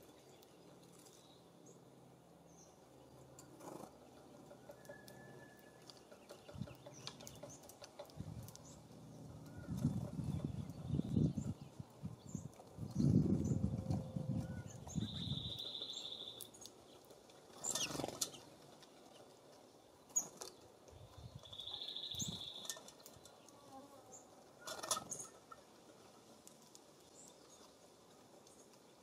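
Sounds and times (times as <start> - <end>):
songbird buzzy trill: 21.3 - 23.5.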